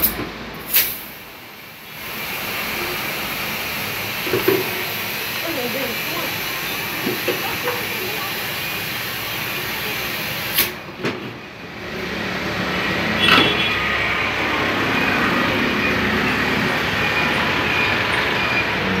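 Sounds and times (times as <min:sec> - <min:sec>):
compressed air rushing from hose: 0:00.6 - 0:10.8.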